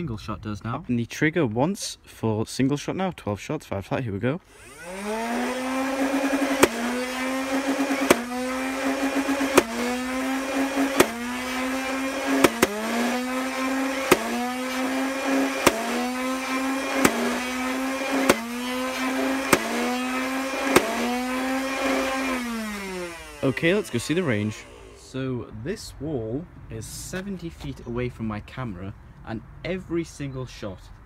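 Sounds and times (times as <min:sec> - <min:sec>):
flywheel motors whining: 0:04.5 - 0:25.2
toy blaster firing cracks: 0:04.6 - 0:23.2.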